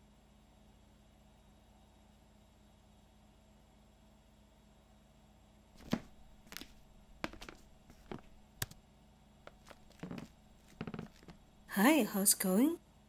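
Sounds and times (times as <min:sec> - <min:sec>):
faint room hum: 0:00.0 - 0:13.0
quiet footsteps: 0:05.8 - 0:08.8, 0:09.5 - 0:11.5
small objects clicking on a desk: 0:05.8 - 0:08.8, 0:09.5 - 0:11.4.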